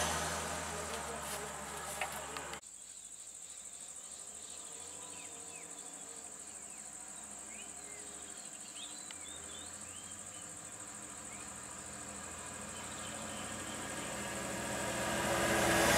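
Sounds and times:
low engine hum idling: 0:00.0 - 0:02.6, 0:09.1 - 0:15.9.

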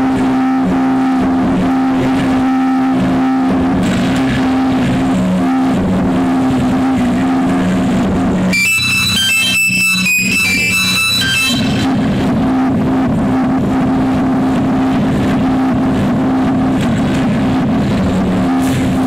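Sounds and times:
low electronic drone: 0:00.0 - 0:19.0
high electronic melody: 0:08.5 - 0:12.0.

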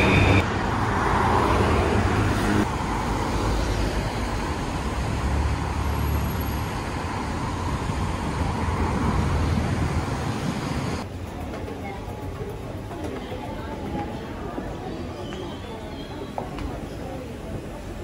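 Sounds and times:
road traffic passing: 0:00.0 - 0:12.8.

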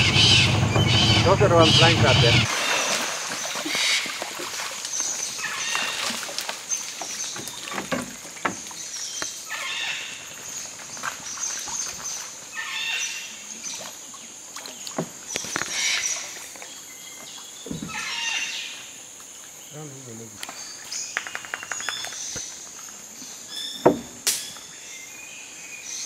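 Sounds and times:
water splashing: 0:00.0 - 0:12.7, 0:13.3 - 0:19.7
wooden pole knocking on hull: 0:23.8 - 0:24.2.

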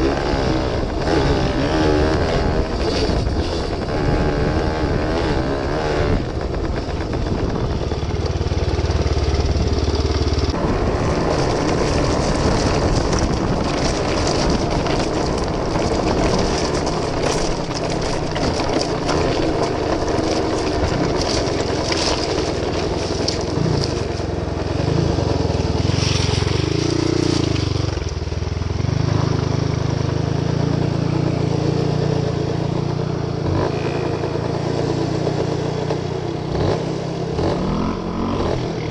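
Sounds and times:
two-stroke motorcycle engine: 0:00.0 - 0:38.9
tyres crunching on gravel: 0:10.5 - 0:28.4.

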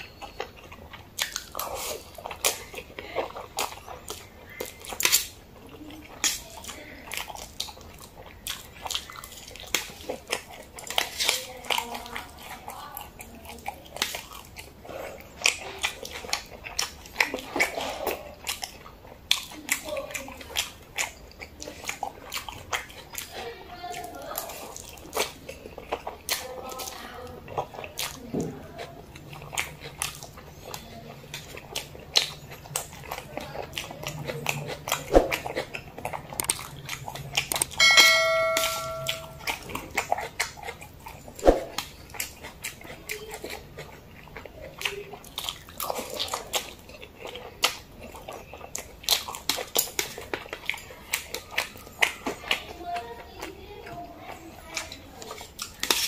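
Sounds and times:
noodle slurping and chewing: 0:00.0 - 0:38.5, 0:39.1 - 0:56.0
short bell-like chime: 0:37.8 - 0:39.4.

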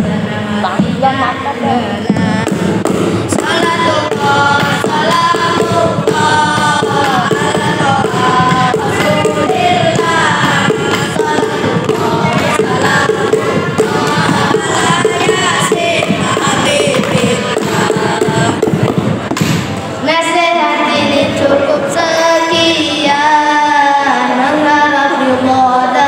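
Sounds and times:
steady percussion beat: 0:00.0 - 0:20.0
boys singing into microphones: 0:00.0 - 0:26.0.

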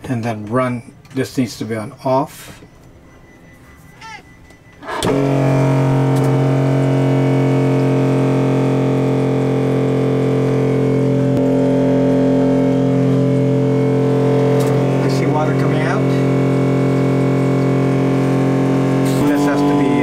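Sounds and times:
electric pump humming: 0:04.4 - 0:20.0.

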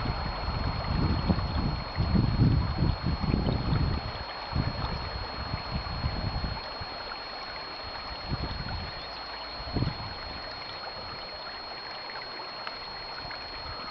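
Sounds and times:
wind buffeting microphone: 0:00.0 - 0:07.1, 0:07.8 - 0:11.3
thin high whine: 0:00.0 - 0:13.9.

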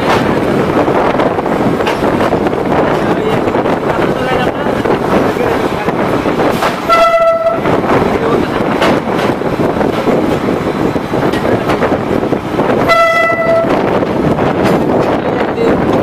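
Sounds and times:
train running on track: 0:00.0 - 0:16.0
train horn blast: 0:06.9 - 0:07.7, 0:12.8 - 0:13.8.

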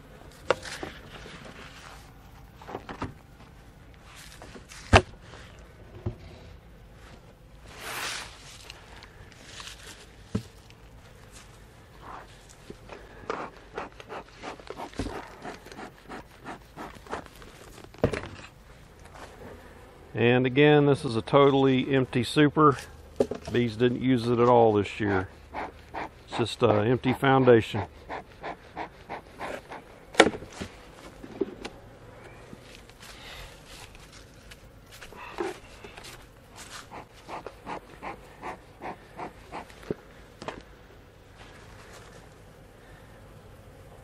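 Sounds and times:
rustling of hive parts: 0:00.0 - 0:44.0
bee smoker bellows puffing: 0:04.0 - 0:20.1, 0:22.3 - 0:44.0
hive tool scraping and clicking: 0:12.1 - 0:18.5, 0:25.1 - 0:29.9, 0:33.9 - 0:40.6.

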